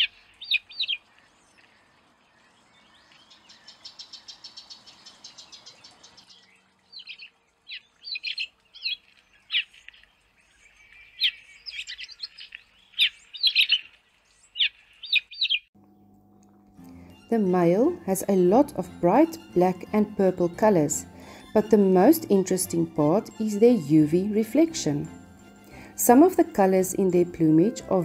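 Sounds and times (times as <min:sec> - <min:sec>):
birds chirping: 0:00.0 - 0:16.1.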